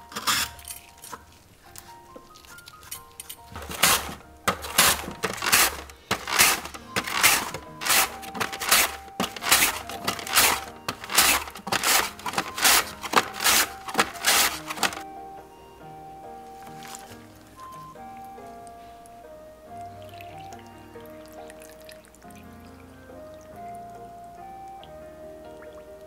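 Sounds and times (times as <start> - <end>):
mandoline slicing scrapes: 0.0 - 1.1, 3.5 - 15.0
background music: 0.0 - 26.0.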